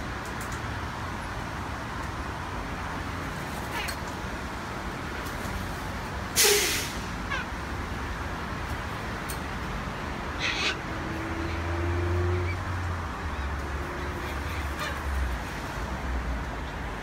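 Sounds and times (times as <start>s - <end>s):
traffic hum: 0.0s - 17.0s
cockatoos screeching: 10.4s - 11.7s.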